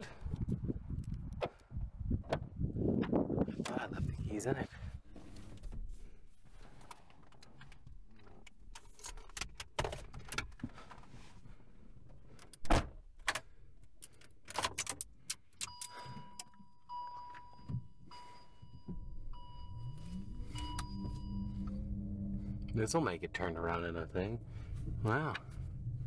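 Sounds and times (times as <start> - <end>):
keys and controls clicking and rattling: 6.6 - 11.1, 12.0 - 19.6
high warning chime beeping: 15.6 - 22.8.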